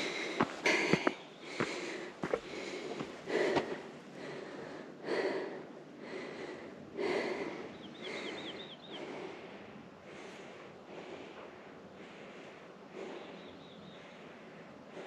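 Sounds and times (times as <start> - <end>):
person breathing heavily: 0.0 - 15.0
bird chirping: 7.7 - 9.1.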